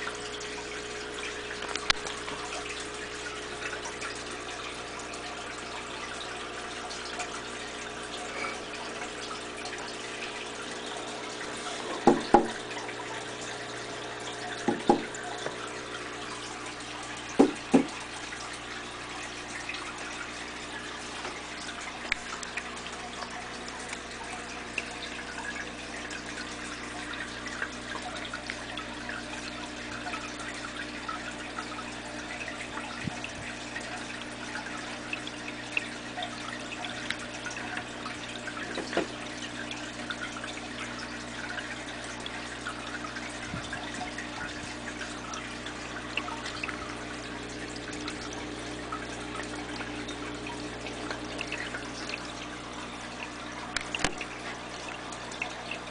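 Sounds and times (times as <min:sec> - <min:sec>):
aquarium filter water trickling: 0:00.0 - 0:55.9
sharp knocks: 0:12.0 - 0:12.6, 0:14.6 - 0:15.1, 0:17.4 - 0:18.0.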